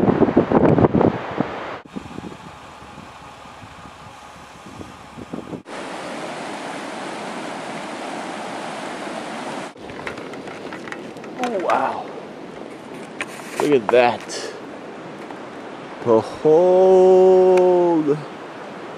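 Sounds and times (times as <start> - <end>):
river rushing: 5.6 - 18.9.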